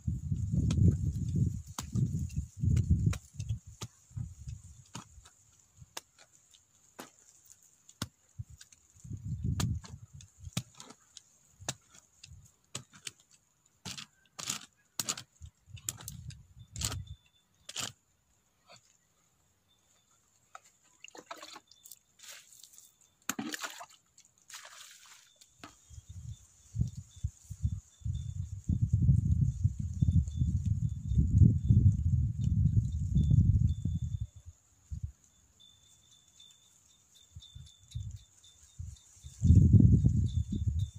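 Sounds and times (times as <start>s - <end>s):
hand tool digging into dry soil: 0.2s - 18.0s, 20.5s - 26.1s.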